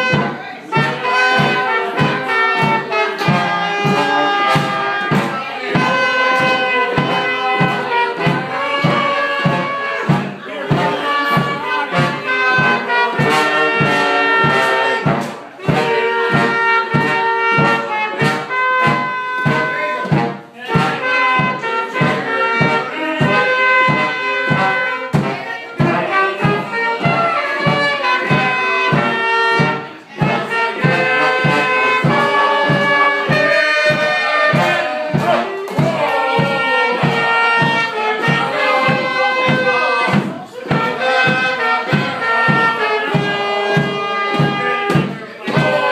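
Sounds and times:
bass drum beat: 0:00.0 - 0:45.9
oompah brass band playing: 0:00.0 - 0:45.9.

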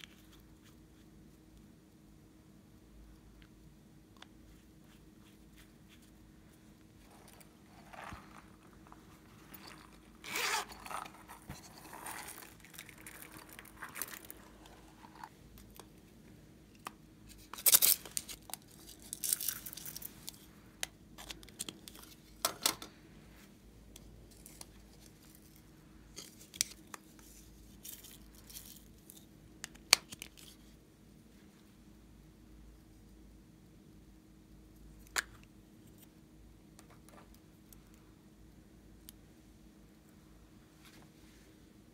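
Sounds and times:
plastic containers rustling and clicking: 0:07.0 - 0:15.8.

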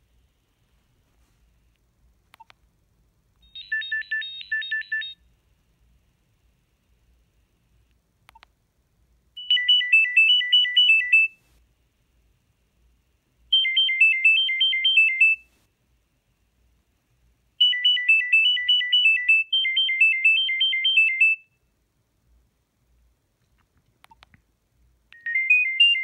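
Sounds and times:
faint click: 0:01.7 - 0:02.7, 0:07.8 - 0:08.5, 0:23.4 - 0:24.5
phone ringtone beeping notes: 0:03.4 - 0:05.2, 0:09.4 - 0:11.4, 0:13.5 - 0:15.4, 0:25.2 - 0:26.0.

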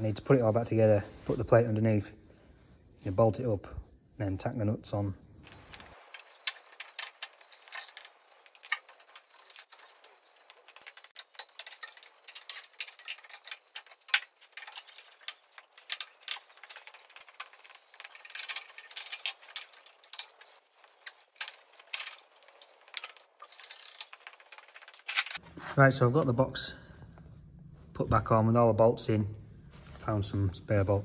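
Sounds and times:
metallic clicks and rattles: 0:05.4 - 0:25.4.

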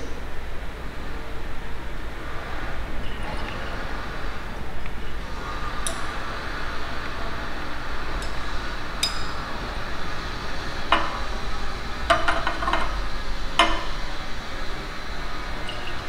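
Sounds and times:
low room hum: 0:00.0 - 0:16.0
glass flask clinking: 0:13.6 - 0:14.0, 0:15.6 - 0:16.0.

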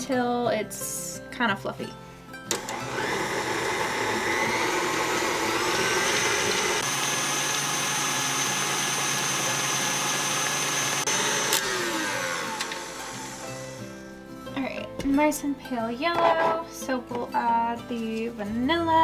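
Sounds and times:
electric mixer whining: 0:02.5 - 0:14.0.

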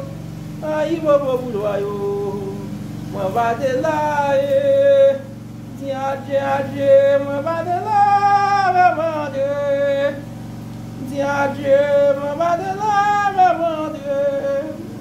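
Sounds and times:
steady low hum: 0:00.0 - 0:15.0
person chanting long sung notes: 0:11.0 - 0:15.0.

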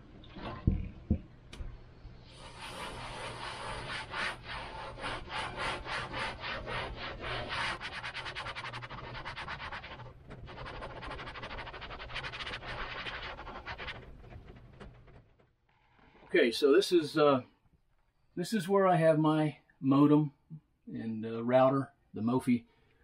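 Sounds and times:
cloth rag scrubbing a roof: 0:02.3 - 0:14.5.

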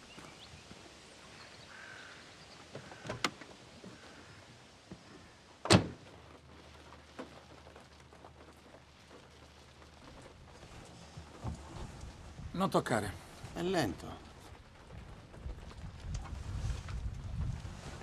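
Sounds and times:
van door thunk: 0:05.7 - 0:06.0.

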